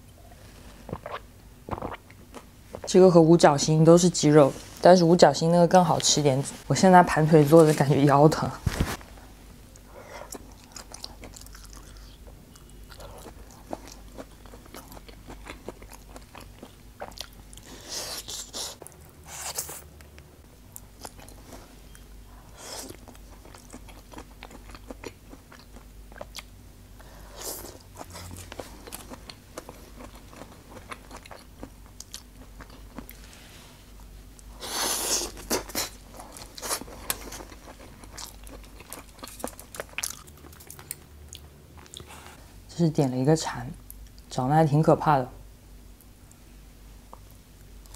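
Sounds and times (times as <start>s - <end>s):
chewing and crunching food: 9.7s - 20.1s, 20.7s - 33.3s, 35.1s - 42.2s.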